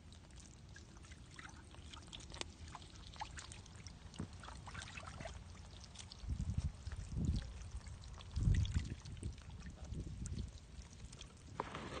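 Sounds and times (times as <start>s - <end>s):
fish splashing in muddy water: 0.0s - 9.7s, 10.4s - 12.0s
heavy water sloshes: 0.7s - 9.8s.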